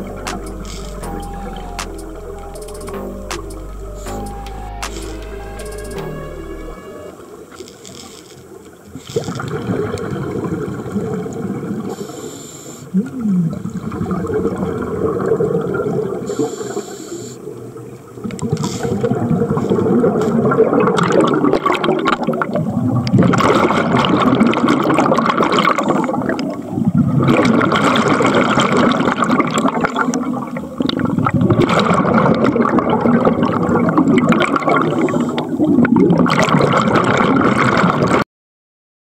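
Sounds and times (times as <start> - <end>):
underwater bubbling: 8.4 - 12.2, 12.8 - 38.2.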